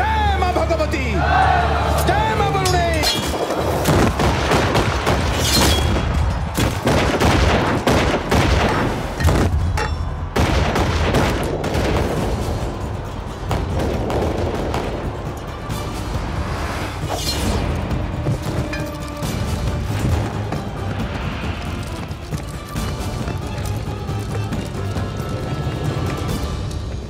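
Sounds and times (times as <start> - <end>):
dramatic music score: 0.0 - 27.0
musket gunshots: 3.2 - 9.7, 10.4 - 12.6.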